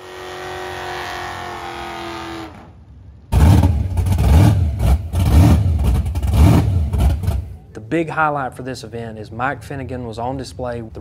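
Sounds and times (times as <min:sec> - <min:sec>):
van engine at high revs: 0:00.0 - 0:07.6
loud rumbling car engine: 0:00.0 - 0:07.7.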